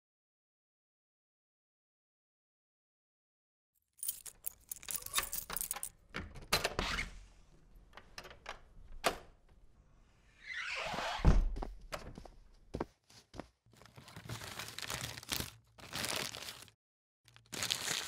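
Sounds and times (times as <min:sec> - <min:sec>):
door shutting with heavy thud: 0:11.2 - 0:11.8.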